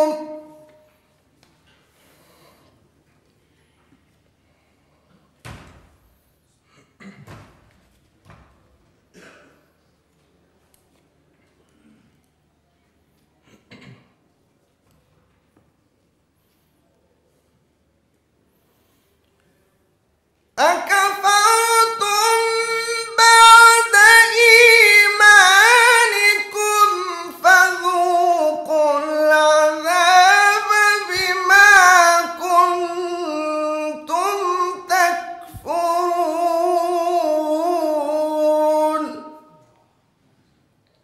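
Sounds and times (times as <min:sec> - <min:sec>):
man reciting melodically: 0:00.0 - 0:00.9, 0:20.6 - 0:39.7.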